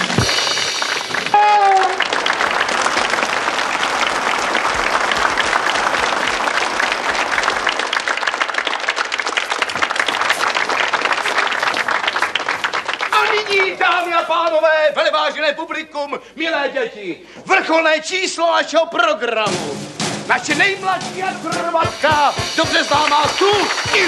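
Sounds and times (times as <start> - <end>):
audience applauding: 0.0 - 14.6, 21.8 - 24.0.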